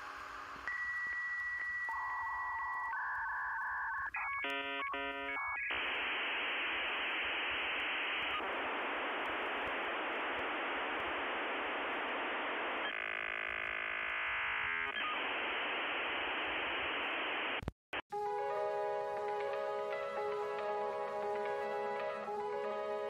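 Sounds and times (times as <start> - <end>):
static hiss: 0.0 - 3.6, 4.2 - 17.7.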